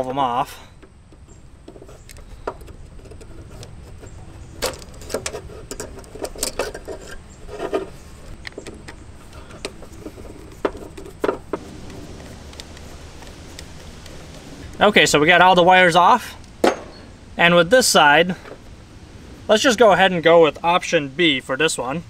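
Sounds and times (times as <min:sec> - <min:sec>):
connectors clicking off metal tabs: 0:00.8 - 0:14.8.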